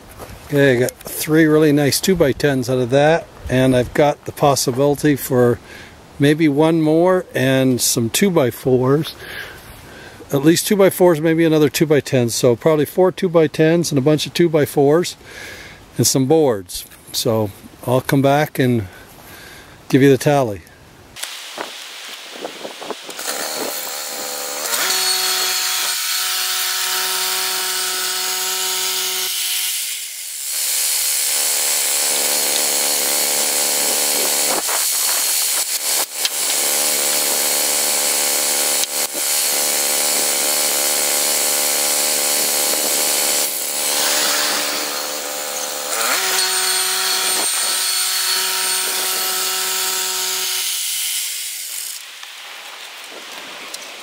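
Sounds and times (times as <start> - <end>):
band blade cutting log: 22.6 - 52.1
bandsaw mill engine running: 23.1 - 52.0.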